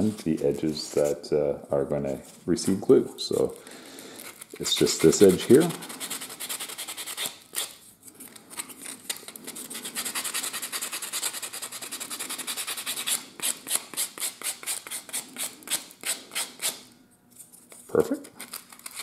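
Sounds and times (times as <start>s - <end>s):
wood sanding on sandpaper: 4.4s - 7.4s, 9.4s - 16.7s.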